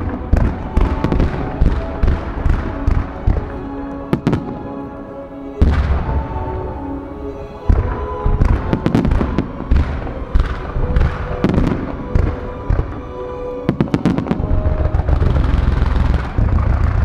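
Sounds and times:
fireworks bursts: 0.0s - 5.0s, 5.6s - 17.0s
music: 0.0s - 17.0s
low rumble: 14.3s - 17.0s.

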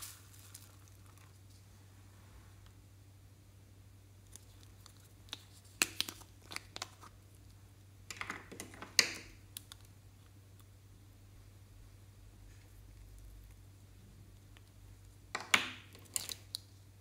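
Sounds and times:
plastic clicks and crackles: 8.1s - 9.9s, 14.5s - 16.7s.

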